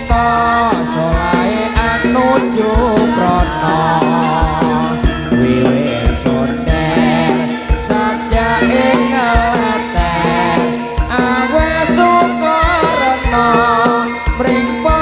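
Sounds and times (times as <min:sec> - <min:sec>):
low drum beats: 0:00.0 - 0:15.0
wavering vibrato melody: 0:02.0 - 0:15.0.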